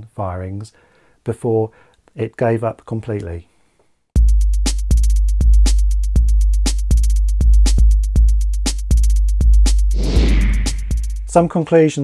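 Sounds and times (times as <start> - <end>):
electronic music drum-machine beat: 4.2 - 10.0, 10.6 - 11.4.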